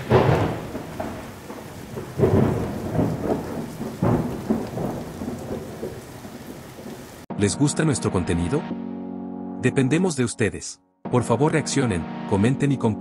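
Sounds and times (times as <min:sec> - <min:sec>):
steady rain: 0:00.0 - 0:07.3
thunder rumbles: 0:00.0 - 0:07.3.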